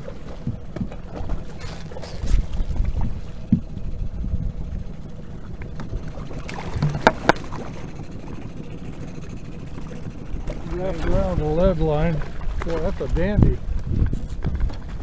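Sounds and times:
outboard motor rumbling: 0.0s - 15.0s
landing net knocking against boat: 5.8s - 7.8s.

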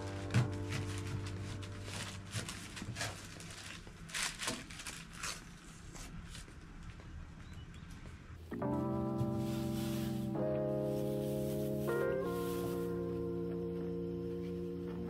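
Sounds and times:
music: 0.0s - 3.8s, 8.4s - 15.0s.

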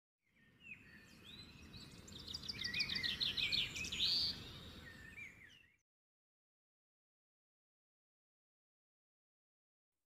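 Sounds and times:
cage birds chirping and whistling: 0.3s - 5.8s.

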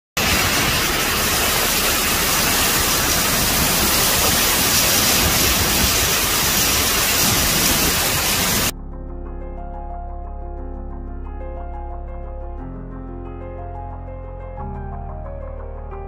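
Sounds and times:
heavy rain: 0.2s - 8.7s
typhoon wind: 0.2s - 8.7s
wind gusts buffeting microphone: 2.8s - 8.7s.

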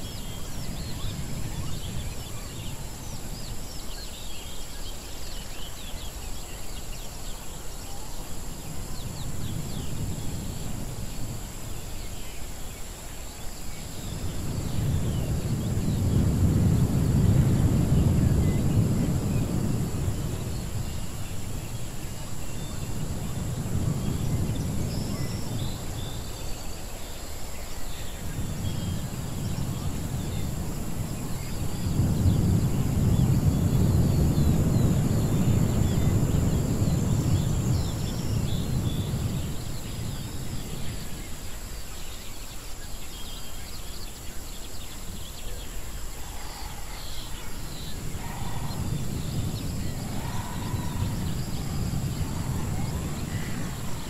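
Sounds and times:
animal calls: 46.2s - 49.1s.

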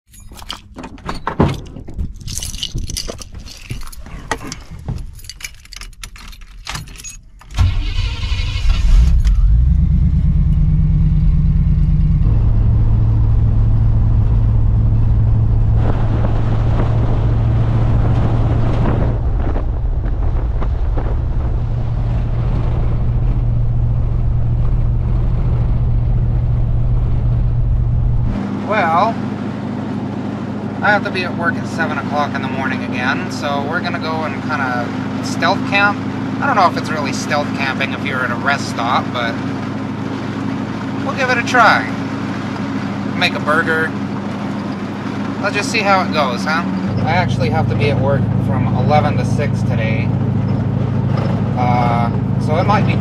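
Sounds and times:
car engine starting and running: 0.0s - 53.0s
keys jangling: 0.1s - 7.5s.

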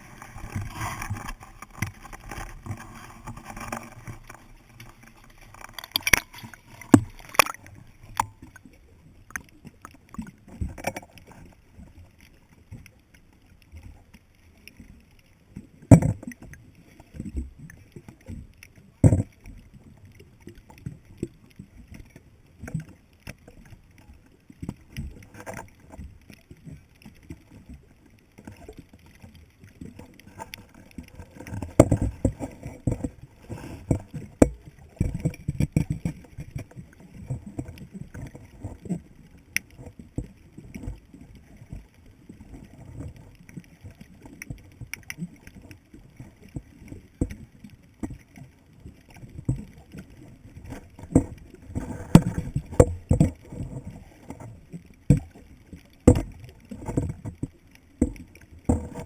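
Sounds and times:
underwater thumps and gurgling: 0.0s - 11.4s, 15.8s - 16.6s, 19.0s - 19.9s, 27.8s - 48.4s, 49.0s - 59.0s.

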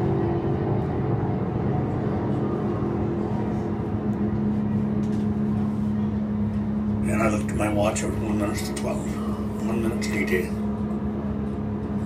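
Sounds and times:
aircraft engines droning: 0.0s - 12.0s.

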